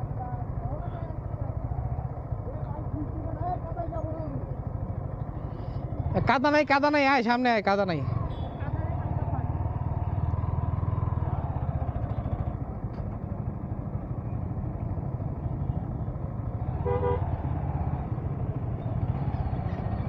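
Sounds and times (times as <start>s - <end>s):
motorcycle engine running: 0.0s - 20.0s
horn toot: 16.8s - 17.3s.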